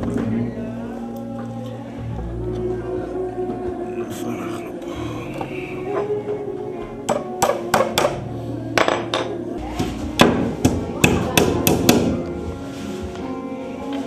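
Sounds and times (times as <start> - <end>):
hammer striking wood: 10.2 - 12.2.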